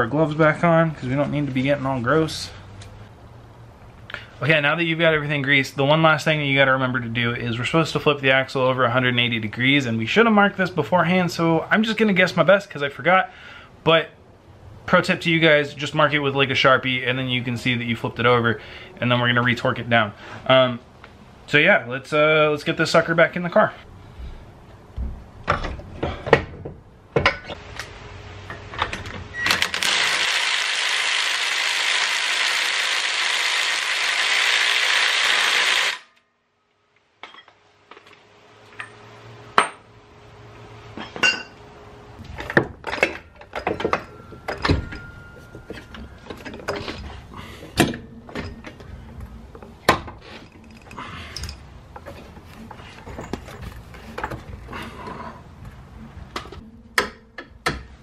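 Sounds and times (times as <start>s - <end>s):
metal tools clinking: 37.2s - 38.1s, 41.0s - 41.6s, 42.2s - 48.8s, 50.3s - 55.4s.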